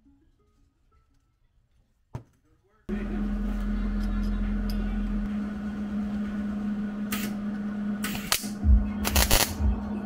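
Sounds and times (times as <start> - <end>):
welding machine humming: 2.9 - 9.9
cooling fan running: 2.9 - 10.0.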